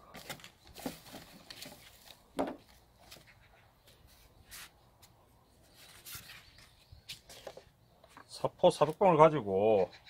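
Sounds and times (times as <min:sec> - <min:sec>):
sandpaper rustling: 0:05.6 - 0:07.5.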